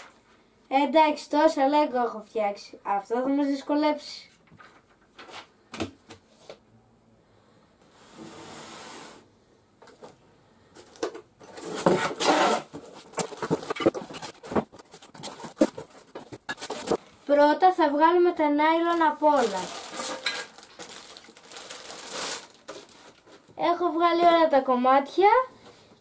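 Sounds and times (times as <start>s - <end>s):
parts handled with scraping and knocks: 10.8s - 17.1s
cardboard box rustling: 11.5s - 17.0s.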